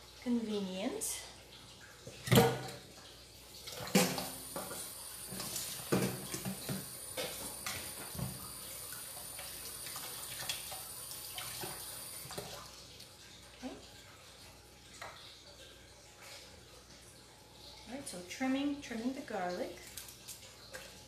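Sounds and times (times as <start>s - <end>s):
kitchen tap running: 0.0s - 21.0s
things clattering at sink: 2.0s - 3.0s, 3.6s - 8.6s.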